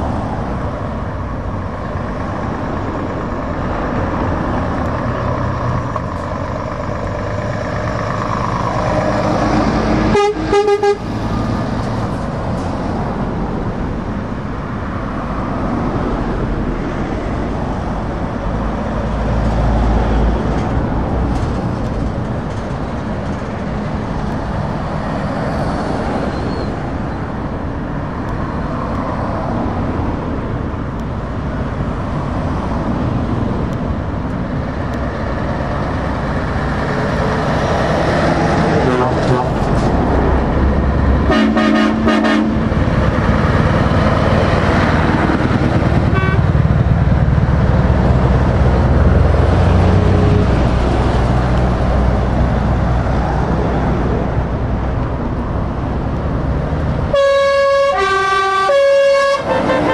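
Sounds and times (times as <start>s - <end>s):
trucks and cars passing: 0.0s - 59.9s
truck air horn blasts: 10.0s - 11.2s, 38.8s - 39.7s, 41.2s - 42.7s, 46.1s - 46.6s, 57.1s - 59.9s.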